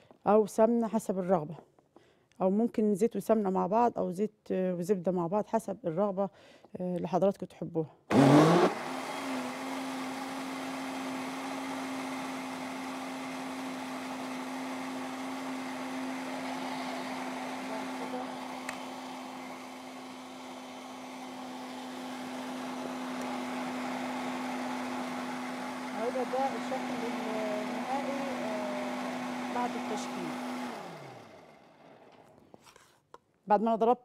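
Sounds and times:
electric blender humming: 0:08.1 - 0:32.4.

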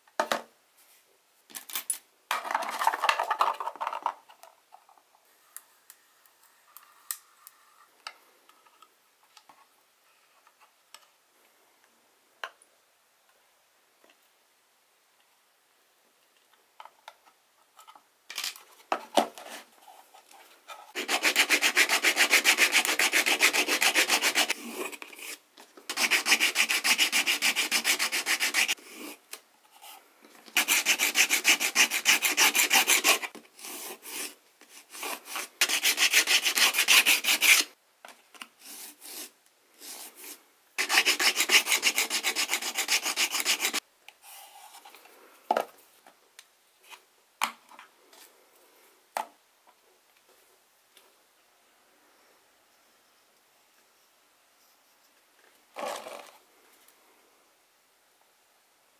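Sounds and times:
rasping hand filing: 0:21.0 - 0:24.6, 0:25.9 - 0:28.8, 0:30.6 - 0:33.3, 0:35.0 - 0:37.7, 0:40.8 - 0:43.8.

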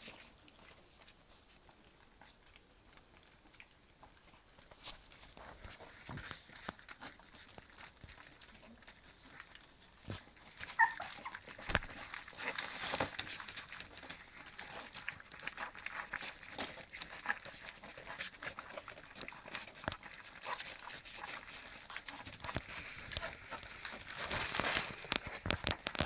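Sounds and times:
puppies lapping and chewing: 0:00.0 - 0:26.0
puppy squeak: 0:10.7 - 0:11.4
newspaper rustling: 0:22.0 - 0:26.0.

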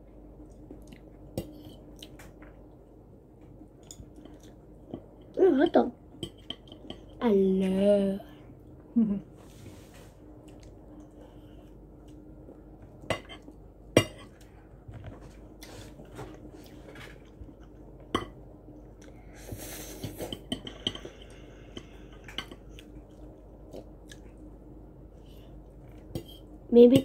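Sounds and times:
faint steady hum: 0:00.0 - 0:27.0.

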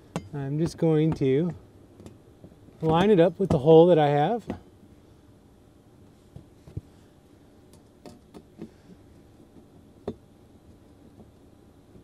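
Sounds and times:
small clicks and taps of metal parts: 0:07.7 - 0:11.4.

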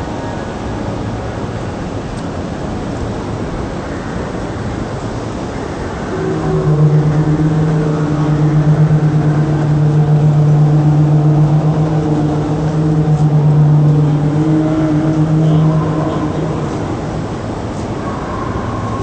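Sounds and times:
train horn: 0:05.2 - 0:19.0.

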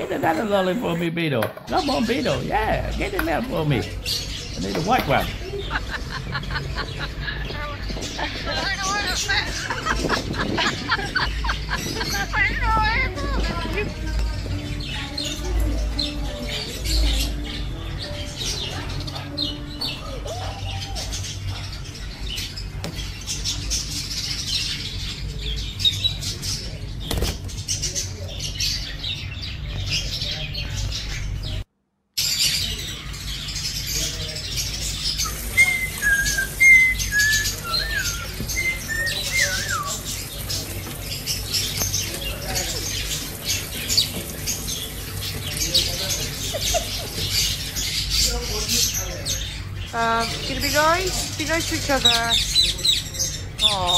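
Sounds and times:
budgerigars chattering: 0:00.0 - 0:13.7, 0:32.2 - 0:53.9.

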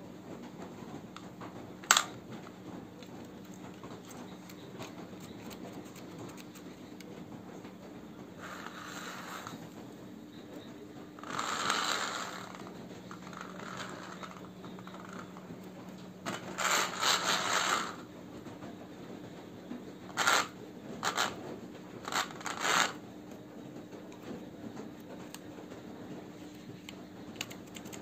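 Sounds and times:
toy car wheels rolling on floor: 0:00.9 - 0:07.0, 0:08.4 - 0:09.8, 0:11.2 - 0:15.6, 0:16.2 - 0:18.1, 0:20.1 - 0:23.0.

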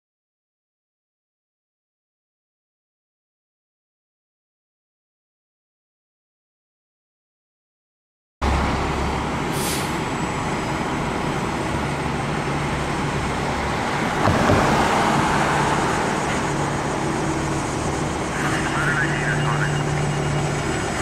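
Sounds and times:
air brakes hissing: 0:09.5 - 0:10.0
truck diesel engine running: 0:15.5 - 0:21.0.

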